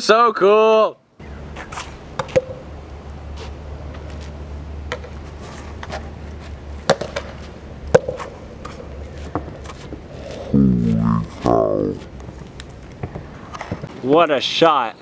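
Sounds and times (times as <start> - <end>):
steady low rumble: 9.9 - 13.4.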